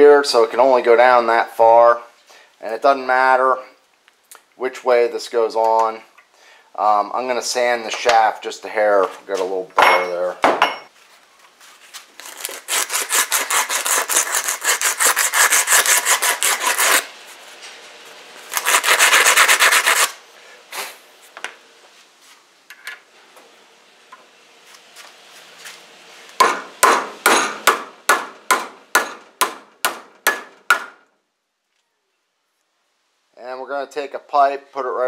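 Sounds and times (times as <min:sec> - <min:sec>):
sandpaper rubbing on steel shaft: 0:12.2 - 0:17.1, 0:18.5 - 0:20.2.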